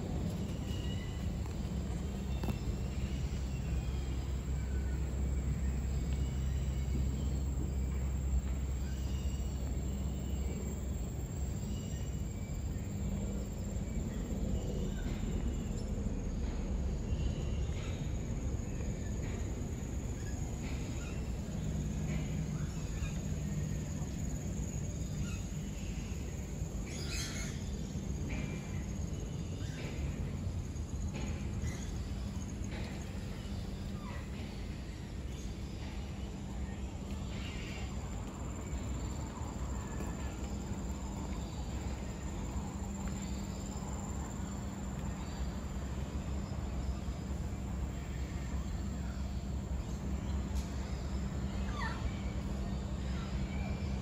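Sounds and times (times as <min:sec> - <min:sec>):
bird calls and chirps: 0:00.0 - 0:10.7, 0:20.1 - 0:30.5
steady low hum: 0:00.0 - 0:54.0.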